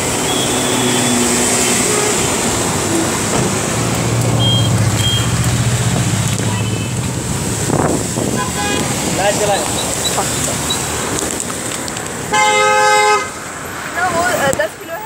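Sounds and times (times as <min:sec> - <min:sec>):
tyre noise on wet road: 0:00.0 - 0:15.0
vehicle engine hum: 0:00.0 - 0:15.0
short high beeps: 0:04.4 - 0:05.4.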